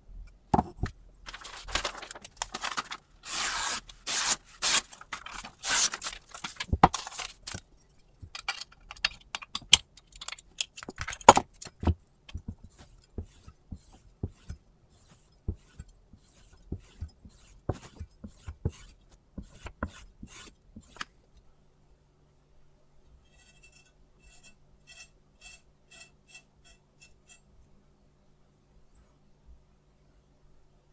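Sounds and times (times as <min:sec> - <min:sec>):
paper rustling: 0:01.2 - 0:07.6.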